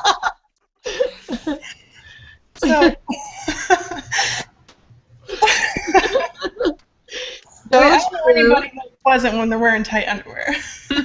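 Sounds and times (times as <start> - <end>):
women laughing: 0.0 - 4.6, 5.3 - 6.8.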